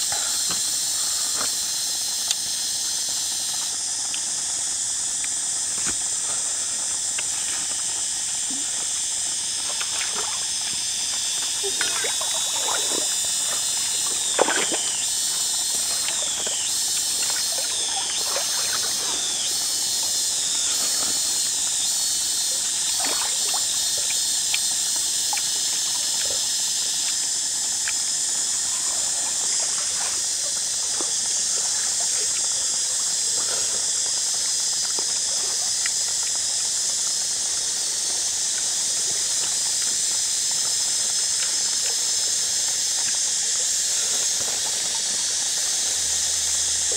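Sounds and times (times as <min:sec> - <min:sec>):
steady high hiss: 0:00.0 - 0:46.9
water trickling: 0:09.4 - 0:26.3.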